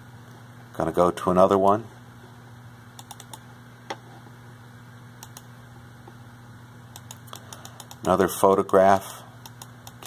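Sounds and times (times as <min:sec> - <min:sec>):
low electrical hum: 0:00.0 - 0:10.0
computer mouse and keyboard clicks: 0:03.0 - 0:03.4, 0:07.0 - 0:08.2, 0:09.4 - 0:10.0.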